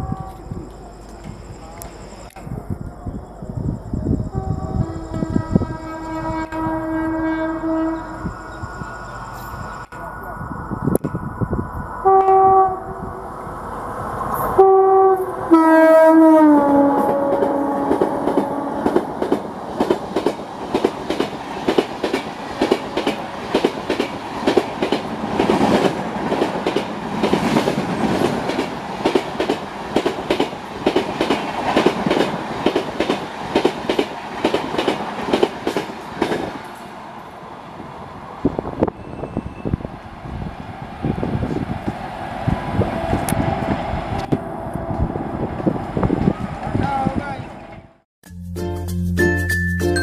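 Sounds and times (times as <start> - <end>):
train horn blasts: 0.0 - 0.7, 4.2 - 8.6, 12.0 - 13.1, 14.6 - 19.0
train wheels clickety-clack: 17.0 - 36.9.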